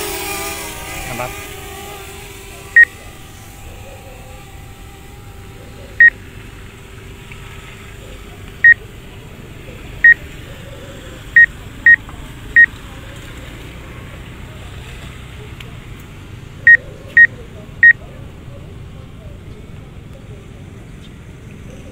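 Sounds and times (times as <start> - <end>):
high-pitched warning beeps: 16.7 - 18.0.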